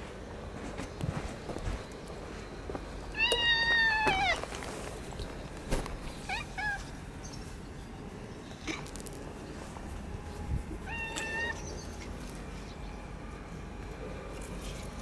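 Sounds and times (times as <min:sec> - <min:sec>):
cat meowing: 0:03.2 - 0:04.4, 0:10.9 - 0:11.6.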